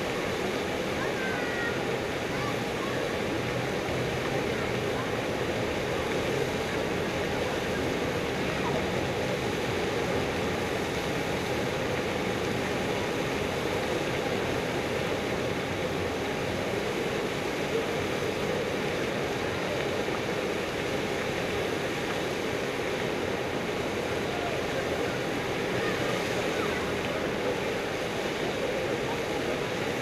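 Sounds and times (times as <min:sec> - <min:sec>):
distant crowd and street noise: 0:00.0 - 0:30.0.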